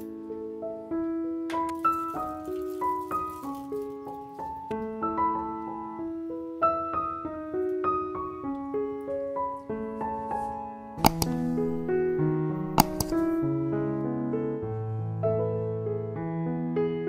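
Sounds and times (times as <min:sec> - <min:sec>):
piano music: 0:00.0 - 0:17.0
sharp double click: 0:11.0 - 0:12.0, 0:12.7 - 0:13.4.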